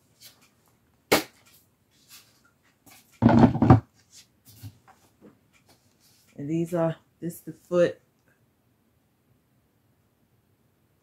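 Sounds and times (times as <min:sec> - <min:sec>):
shelf parts knocking and clattering: 0:03.2 - 0:03.9.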